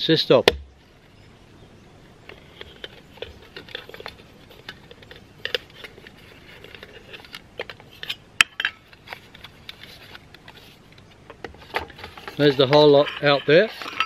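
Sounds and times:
metal lid set on wooden table: 11.7 - 14.0
metal pieces clinking: 12.2 - 14.0.

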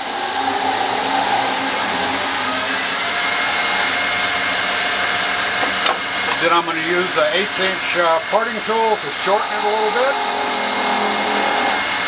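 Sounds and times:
wood lathe spinning with whine: 0.0 - 12.0.

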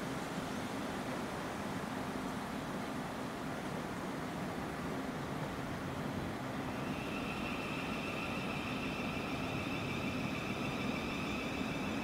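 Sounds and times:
electric train whine: 6.4 - 12.0
rushing noise: 6.4 - 12.0.

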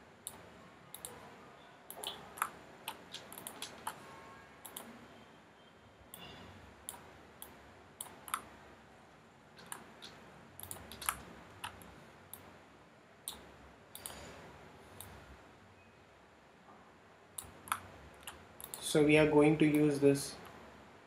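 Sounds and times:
mouse and keyboard clicking: 0.2 - 1.2, 1.9 - 4.0, 4.6 - 4.9, 8.0 - 8.5, 9.6 - 12.4, 17.4 - 18.9.

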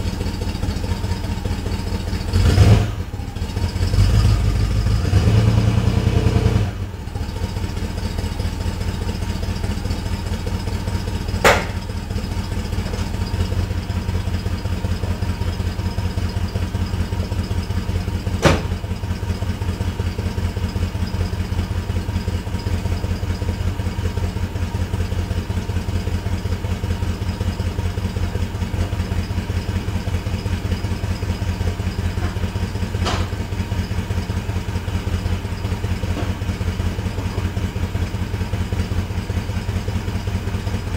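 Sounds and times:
car engine idling: 0.0 - 40.9
sharp engine knocks: 11.3 - 12.1, 18.3 - 19.0, 32.1 - 33.5.

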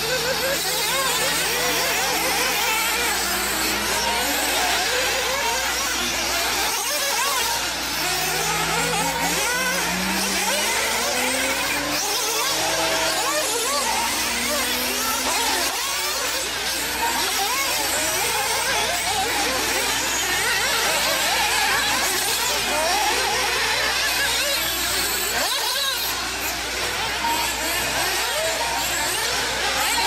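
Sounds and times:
toy car motors whining: 0.0 - 30.0.

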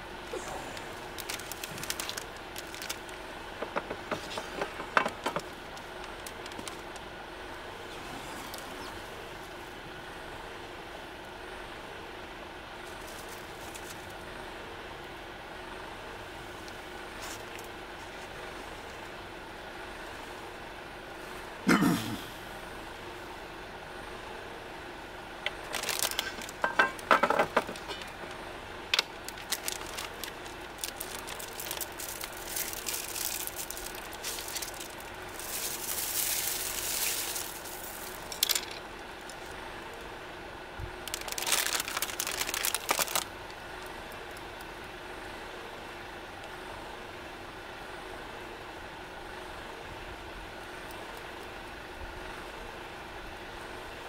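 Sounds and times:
low background hum: 0.0 - 54.0
plastic bag rustling: 0.7 - 3.2, 4.2 - 7.0, 25.6 - 28.4, 29.0 - 39.6, 41.0 - 43.3.

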